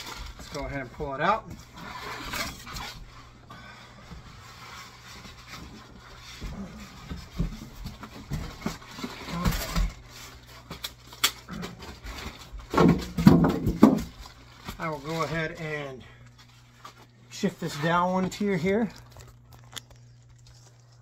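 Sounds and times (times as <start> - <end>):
cardboard scraping: 0.0 - 3.4
plastic wrapping rustling: 0.0 - 3.4, 4.2 - 21.0
steady low hum: 0.0 - 21.0.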